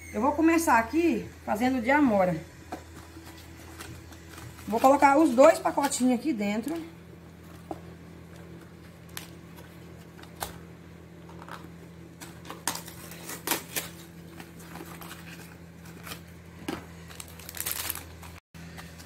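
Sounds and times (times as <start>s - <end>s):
plastic sachets crinkling: 17.0s - 18.4s.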